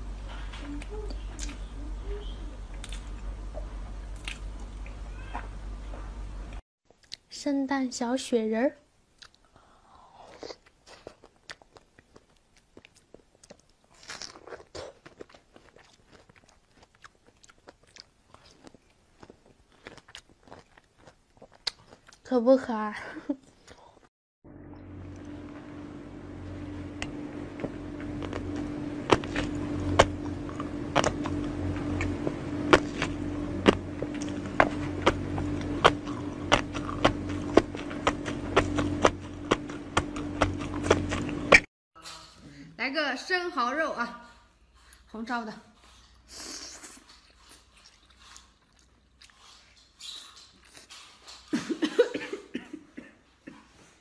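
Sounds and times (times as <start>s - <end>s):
steady low hum: 0.0s - 6.6s, 24.4s - 42.8s
person chewing fish roe: 2.7s - 5.6s, 9.2s - 22.3s, 27.6s - 41.7s, 45.8s - 51.5s.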